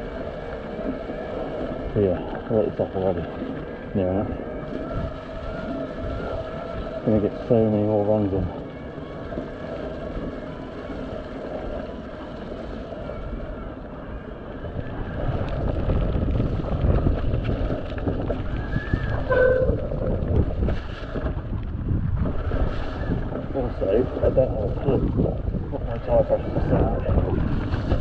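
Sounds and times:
wind buffeting microphone: 0:00.0 - 0:28.0
bike rattling over bumps: 0:14.6 - 0:28.0
brief squeak: 0:18.8 - 0:19.8.

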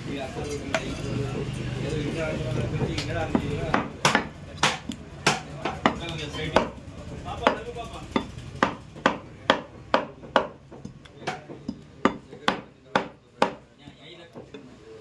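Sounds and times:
cleaver chopping meat: 0:02.8 - 0:06.8, 0:07.4 - 0:13.6.

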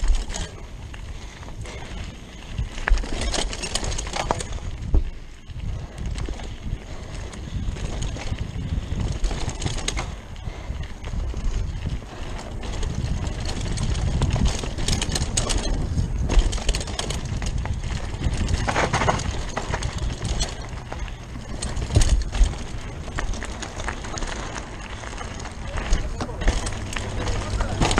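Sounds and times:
bike chain and frame rattling: 0:00.0 - 0:27.9
tyres rolling over dirt: 0:00.0 - 0:27.9
wind buffeting microphone: 0:00.0 - 0:27.9
heavy thumps of bike: 0:06.0 - 0:27.9.

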